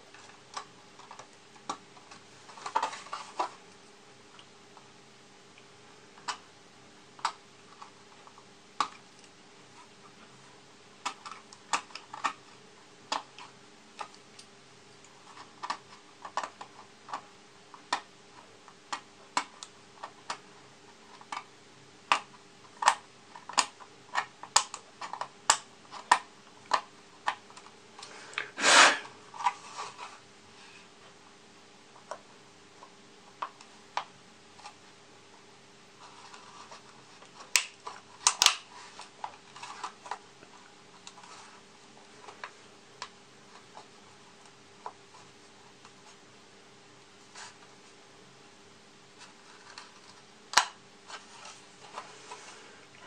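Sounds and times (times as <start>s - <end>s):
faint steady hum: 0.0s - 53.0s
hand tool scraping plastic: 28.4s - 30.1s.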